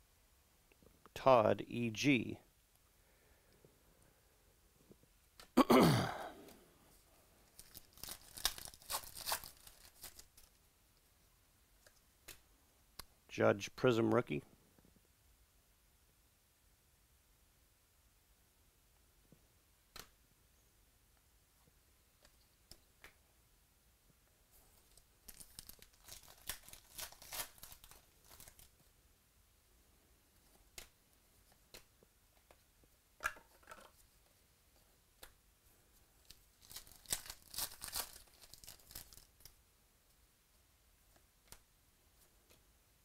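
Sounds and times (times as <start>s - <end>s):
wrapper crinkling and tearing: 7.5s - 10.6s, 24.8s - 28.7s, 36.2s - 39.6s.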